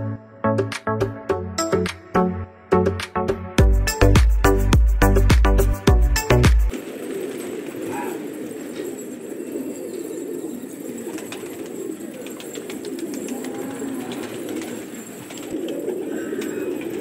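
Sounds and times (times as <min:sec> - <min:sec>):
pigeons cooing: 0:06.7 - 0:17.0.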